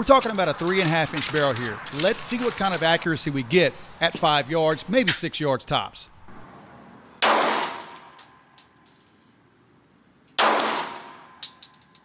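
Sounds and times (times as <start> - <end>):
pistol shots echoing: 7.2 - 8.2, 10.4 - 11.4.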